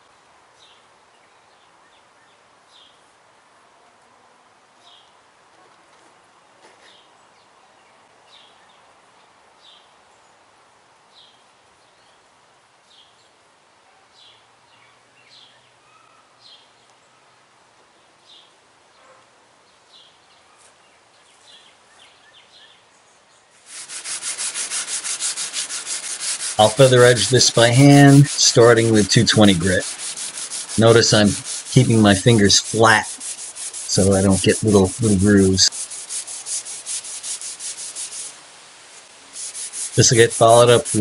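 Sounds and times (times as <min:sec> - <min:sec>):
sandpaper rubbing back and forth: 0:23.6 - 0:41.0.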